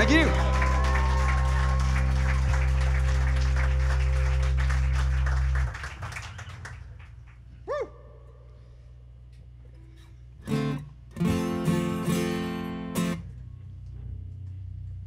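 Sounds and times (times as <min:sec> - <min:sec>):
live music held chord: 0:00.0 - 0:05.7
deep low drone: 0:00.0 - 0:07.6.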